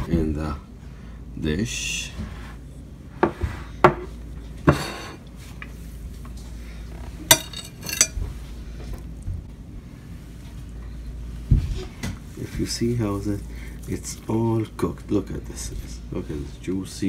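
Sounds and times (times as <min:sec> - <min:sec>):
cutlery scraping plate: 0:04.7 - 0:05.2, 0:07.3 - 0:08.2
knife and fork clinking on platter: 0:07.3 - 0:08.2.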